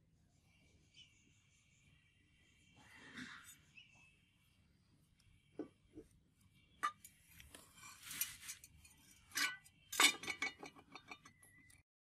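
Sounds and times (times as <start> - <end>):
cleaver scraping on concrete: 7.4 - 9.4
metallic clink: 7.8 - 11.8.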